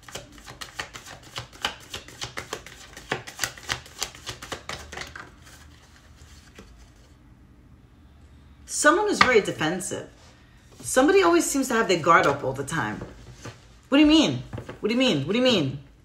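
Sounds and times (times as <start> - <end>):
cards being shuffled: 0.0 - 7.1.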